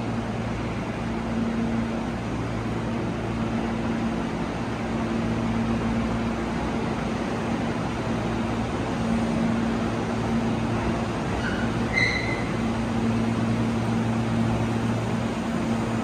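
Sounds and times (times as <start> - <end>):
mechanical hum and rush: 0.0 - 16.0.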